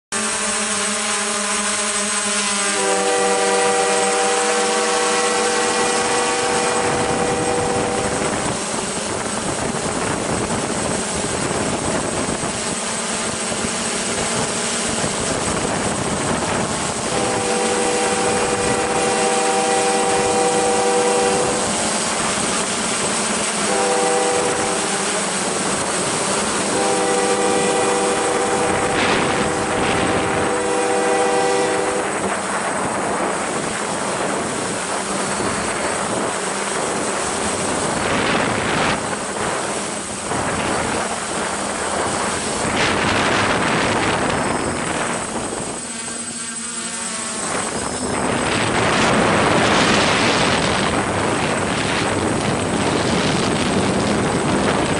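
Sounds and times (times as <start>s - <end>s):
locomotive air horn: 0.1s - 9.6s, 15.3s - 33.7s, 41.9s - 52.2s.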